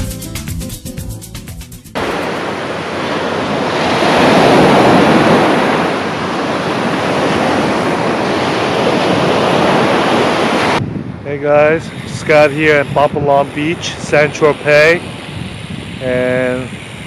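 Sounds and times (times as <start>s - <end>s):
surf breaking on beach: 2.0s - 17.0s
wind on microphone: 2.0s - 17.0s.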